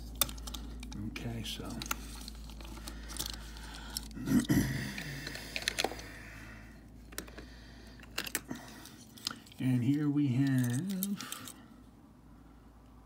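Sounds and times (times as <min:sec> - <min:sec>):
toy vehicles clicking and rattling: 0:00.0 - 0:04.2, 0:04.9 - 0:06.1, 0:07.0 - 0:11.6.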